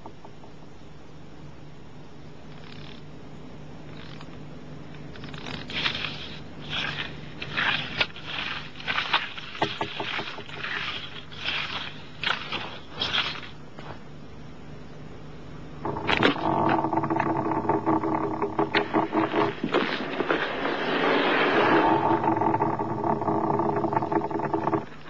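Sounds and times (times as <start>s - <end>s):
low steady hum: 0.0s - 25.0s
short scraping strokes: 5.2s - 14.1s.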